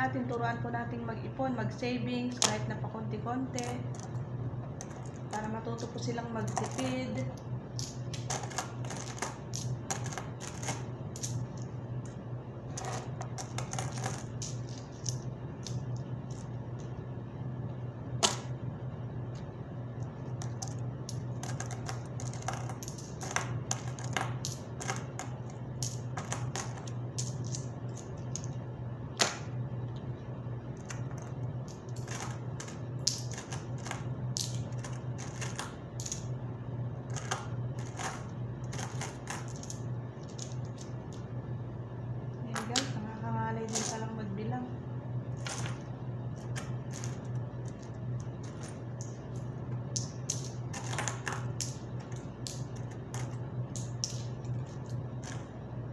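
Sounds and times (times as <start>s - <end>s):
low hum: 0.0s - 55.9s
coins clinking: 4.8s - 11.7s, 12.7s - 16.7s, 20.4s - 28.6s, 30.8s - 36.3s, 37.1s - 41.2s, 43.6s - 44.1s, 45.3s - 55.5s.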